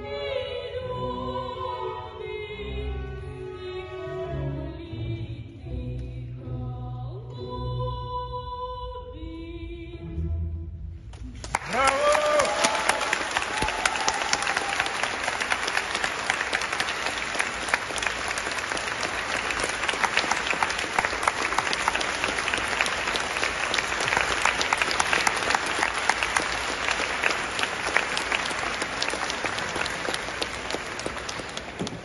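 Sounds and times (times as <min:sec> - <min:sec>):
audience applauding: 0:11.3 - 0:32.0.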